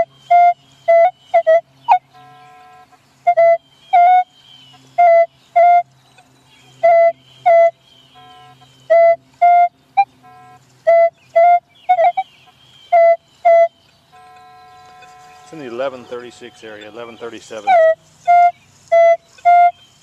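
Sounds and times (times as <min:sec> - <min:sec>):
faint steady hum: 0:00.0 - 0:20.0
metal detector beeps: 0:13.0 - 0:19.7.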